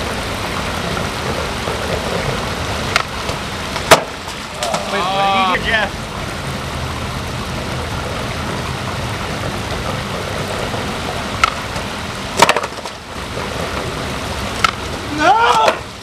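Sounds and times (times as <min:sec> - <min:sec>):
skateboard clack: 0:00.0 - 0:05.5, 0:09.2 - 0:16.0
stream of running water: 0:00.0 - 0:16.0.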